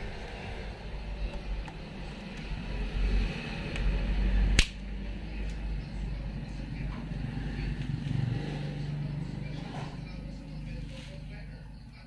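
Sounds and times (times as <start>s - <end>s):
low background hum: 0.0s - 12.0s
pliers snapping wire: 4.5s - 4.8s.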